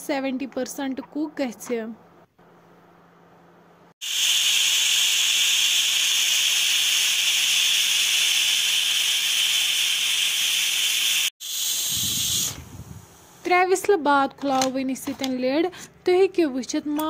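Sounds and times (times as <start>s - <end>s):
pressure cooker steam hissing: 4.0s - 13.4s.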